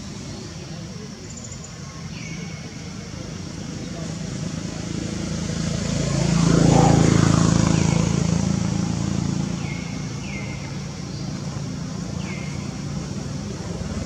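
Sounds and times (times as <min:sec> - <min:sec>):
vehicle engine passing by: 0:03.0 - 0:14.0.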